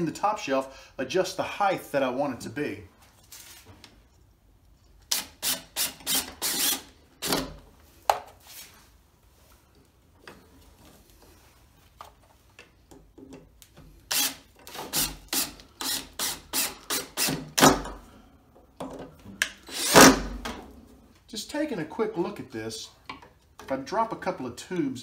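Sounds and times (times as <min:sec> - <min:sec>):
cordless drill driving screws: 0:05.1 - 0:07.5, 0:14.1 - 0:17.8, 0:19.6 - 0:20.3.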